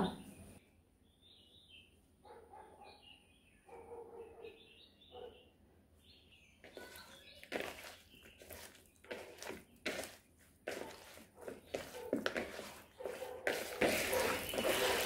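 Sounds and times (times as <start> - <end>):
hands mixing wet marinade: 6.6 - 15.0.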